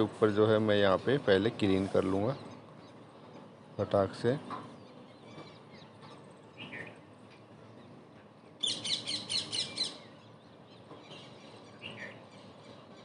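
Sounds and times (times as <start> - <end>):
bird chirping: 4.6 - 7.1, 8.6 - 13.0.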